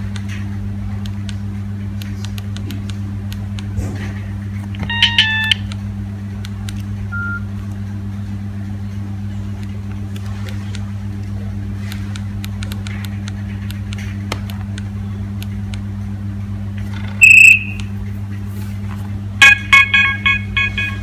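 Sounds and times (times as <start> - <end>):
loud phone beep: 4.8 - 5.6, 7.1 - 7.5, 17.2 - 17.8, 19.4 - 21.0
monophonic ringtone: 4.9 - 5.6, 19.4 - 21.0.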